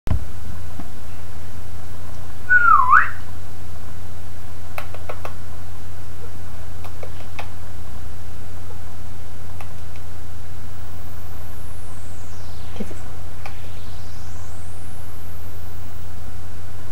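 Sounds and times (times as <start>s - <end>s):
steady low hum: 0.1s - 16.9s
parakeet whistle sweeping up: 2.5s - 3.2s.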